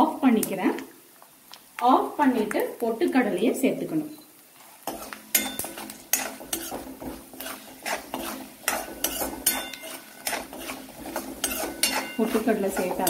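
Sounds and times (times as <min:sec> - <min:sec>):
metal spoon scraping metal pan: 0:04.9 - 0:13.0.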